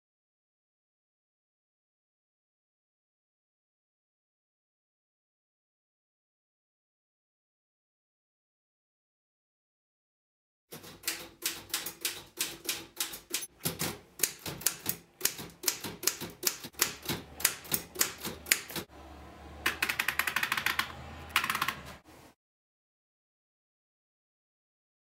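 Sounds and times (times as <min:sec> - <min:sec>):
typewriter keystrokes: 0:10.7 - 0:18.9, 0:19.7 - 0:22.0.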